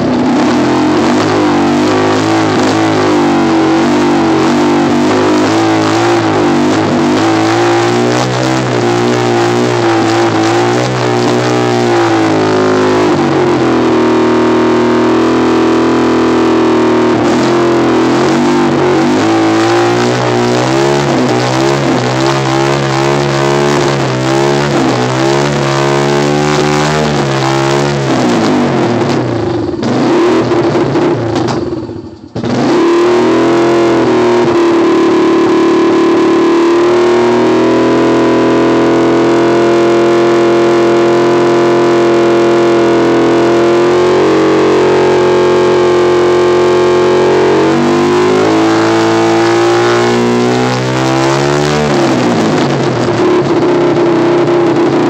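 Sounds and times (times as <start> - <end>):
motorcycle engine revving unevenly: 0.0 - 55.0.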